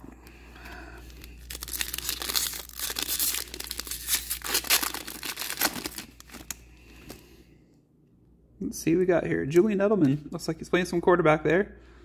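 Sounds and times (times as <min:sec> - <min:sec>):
foil wrapper tearing and crinkling: 0:01.1 - 0:06.6.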